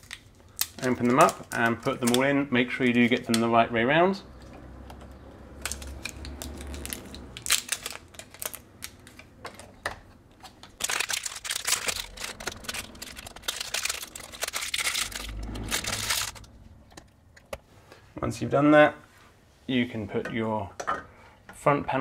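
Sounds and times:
plastic scraping: 5.6s - 17.7s.

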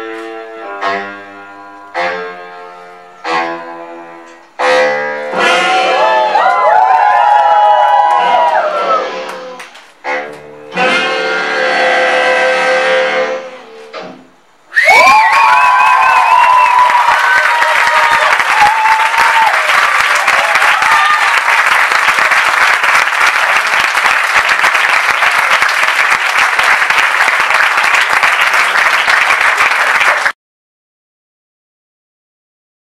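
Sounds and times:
people shouting cheers: 5.6s - 9.4s, 14.7s - 21.6s
audience applauding: 6.0s - 9.9s, 14.9s - 30.4s.

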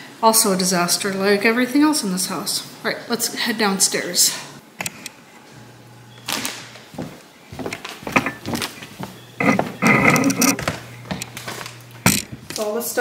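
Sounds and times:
footsteps on wooden stairs: 6.6s - 12.6s.

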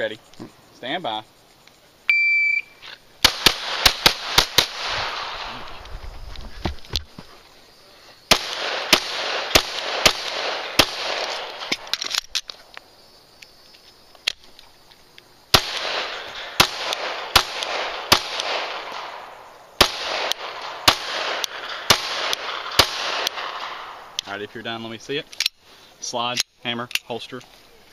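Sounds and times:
pistol shots echoing: 3.2s - 5.5s, 8.3s - 12.0s, 15.5s - 24.2s.

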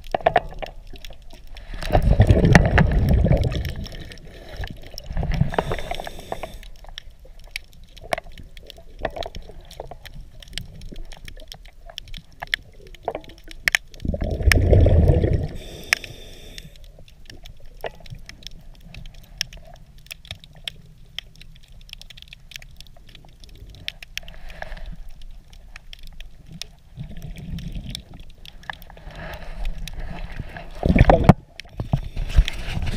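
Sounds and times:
underwater clicks and crackle: 0.0s - 32.9s
diver exhaling bubbles: 1.8s - 6.6s, 14.0s - 16.8s.

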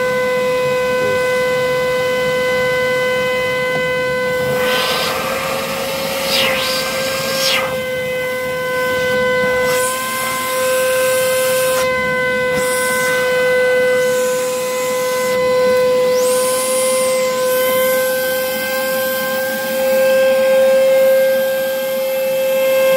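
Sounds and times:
vacuum motor whining: 0.0s - 22.9s
air rushing through hose: 4.3s - 11.9s.

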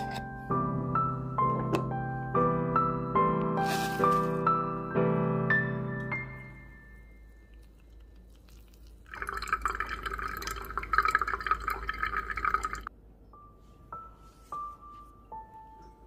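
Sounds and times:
coffee trickling into glass: 7.5s - 12.9s.

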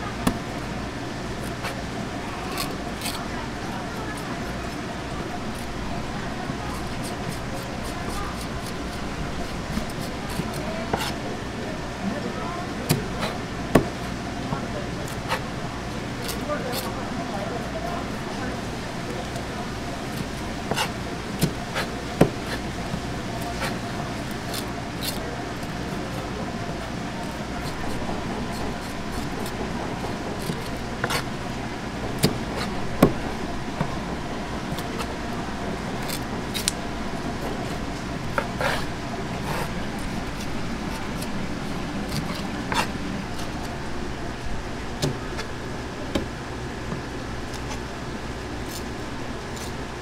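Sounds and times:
steady background hum: 0.0s - 50.0s
knife scraping plastic cutting board: 6.7s - 11.2s, 12.8s - 14.0s, 15.0s - 15.5s, 20.1s - 31.3s, 35.9s - 43.8s.

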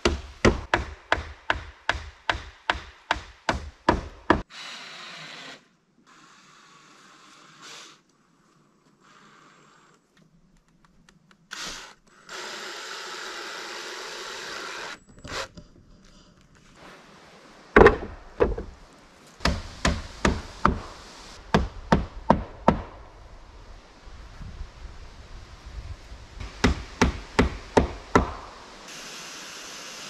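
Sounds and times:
hammer knocking: 17.8s - 18.7s.

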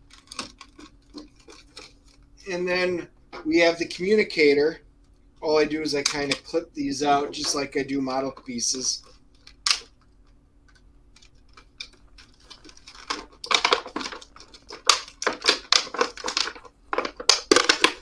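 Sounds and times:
plastic crinkling: 0.0s - 2.3s, 9.0s - 18.0s.

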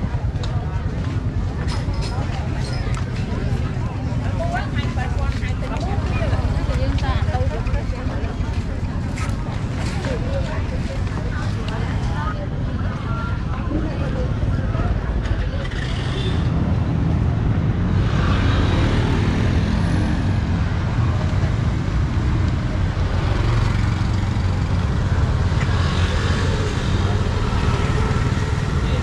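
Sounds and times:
people talking: 0.0s - 29.0s
traffic rumble: 0.0s - 29.0s
motor scooters passing: 13.2s - 29.0s.

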